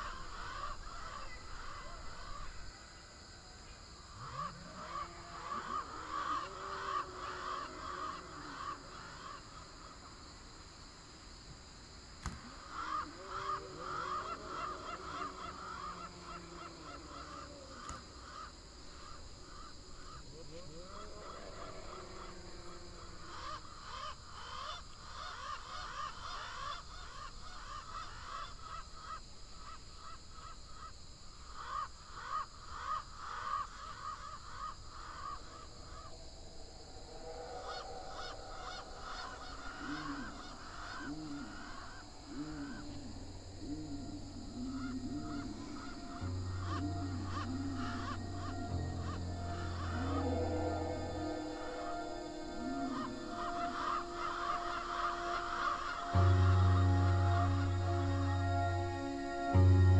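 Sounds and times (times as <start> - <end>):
steady high whine: 35.0 - 41.9, 42.6 - 59.9.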